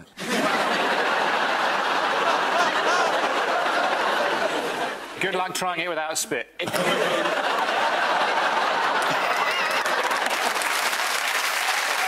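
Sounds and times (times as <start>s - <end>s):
audience laughing: 0.2s - 5.2s, 6.6s - 11.0s
audience applauding: 7.4s - 12.0s.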